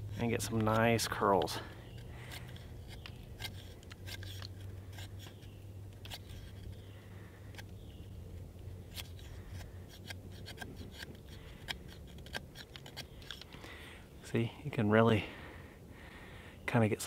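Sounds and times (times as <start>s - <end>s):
steady low hum: 0.0s - 17.0s
knife shaving wood: 0.2s - 7.8s, 8.8s - 13.5s.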